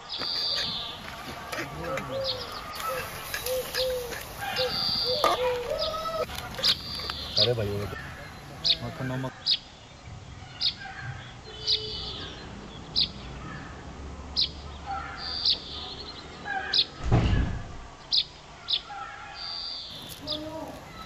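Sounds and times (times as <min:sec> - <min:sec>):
small bird chirping: 0:02.0 - 0:13.2.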